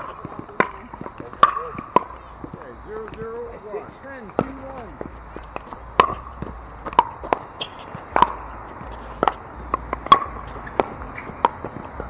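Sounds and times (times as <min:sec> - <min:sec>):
paddles hitting plastic ball: 0:04.2 - 0:12.0.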